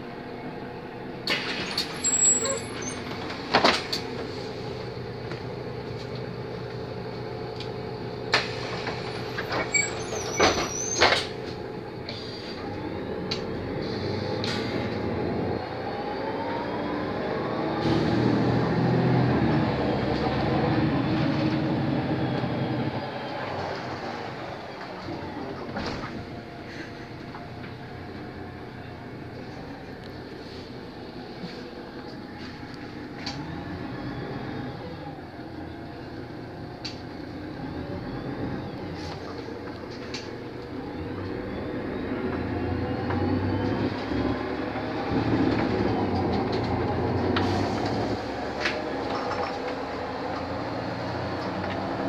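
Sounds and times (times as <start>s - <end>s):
bus engine running: 0.0s - 52.0s
rising engine whine: 11.5s - 52.0s.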